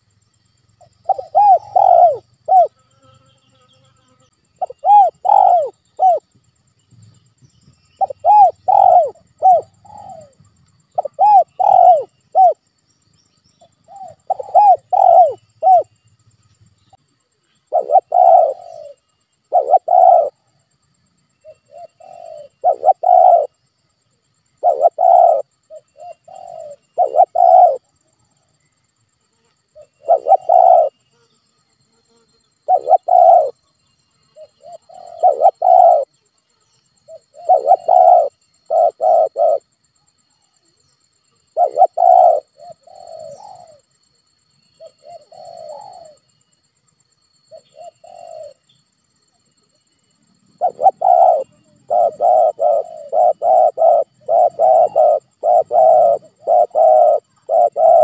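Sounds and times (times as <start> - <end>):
dove cooing: 0.8 - 2.8, 4.6 - 6.4, 8.0 - 12.6, 13.6 - 15.9, 17.7 - 20.6, 21.4 - 23.6, 24.6 - 27.9, 29.8 - 31.0, 32.6 - 33.6, 34.4 - 36.2, 37.1 - 39.7, 41.5 - 43.9, 44.8 - 46.3, 47.5 - 48.6, 50.5 - 58.0.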